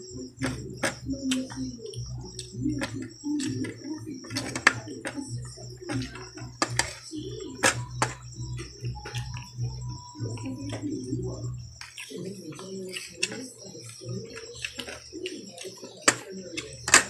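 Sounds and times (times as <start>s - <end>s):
low hum: 0.0s - 12.5s
chewing: 0.0s - 17.0s
high-pitched buzz: 0.0s - 17.0s
wet lip-smacking clicks: 0.1s - 10.9s, 11.5s - 17.0s.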